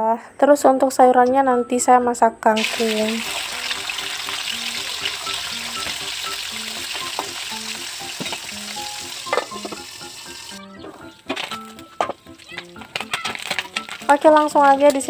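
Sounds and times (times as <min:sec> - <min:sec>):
fish sizzling in hot oil: 0:02.6 - 0:10.6, 0:11.3 - 0:15.0.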